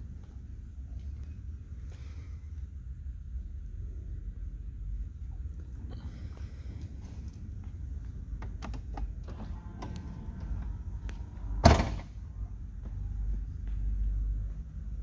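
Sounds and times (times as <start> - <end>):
faint motor whine: 0.0 - 15.0
trunk lid thud: 11.5 - 12.1.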